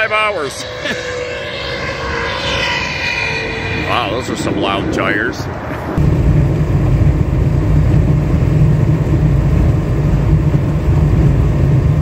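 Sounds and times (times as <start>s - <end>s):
road and engine rumble in truck cab: 5.3s - 12.0s.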